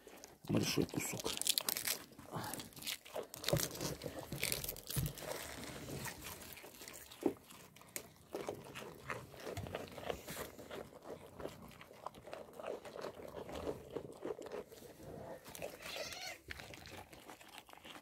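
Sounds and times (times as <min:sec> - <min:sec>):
rams crunching cabbage: 0:00.0 - 0:18.0.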